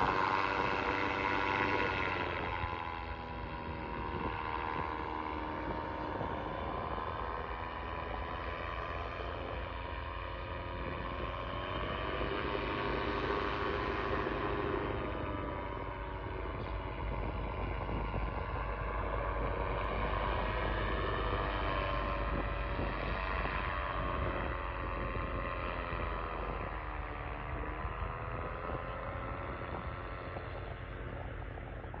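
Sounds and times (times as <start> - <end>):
paraglider engine droning: 0.0 - 32.0.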